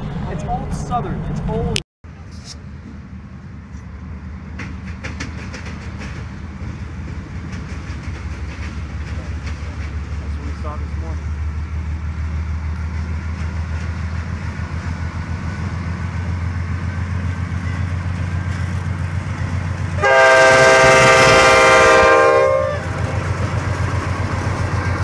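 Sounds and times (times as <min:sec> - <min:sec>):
diesel locomotive engine rumble: 0:00.0 - 0:25.0
locomotive horn chord: 0:20.0 - 0:23.0.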